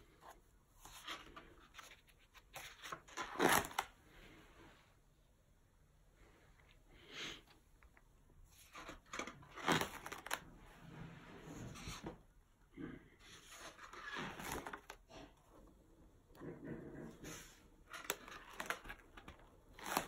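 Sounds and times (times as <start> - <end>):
stiff paper pages rustling: 0.1 - 4.0, 8.5 - 10.5, 13.2 - 15.3, 17.8 - 20.0.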